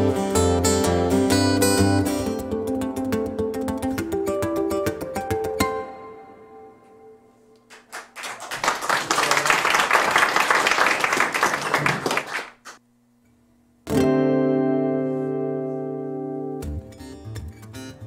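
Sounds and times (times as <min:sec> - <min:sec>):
acoustic guitar: 0:00.0 - 0:07.4, 0:13.8 - 0:18.0
guitar chord ringing: 0:00.0 - 0:07.6, 0:13.8 - 0:18.0
audience clapping: 0:07.7 - 0:12.8.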